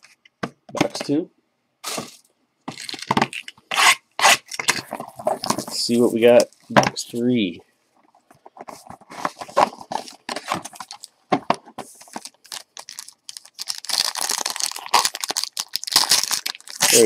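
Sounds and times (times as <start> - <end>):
wrapper crinkling and tearing: 9.4 - 11.2, 12.0 - 17.0.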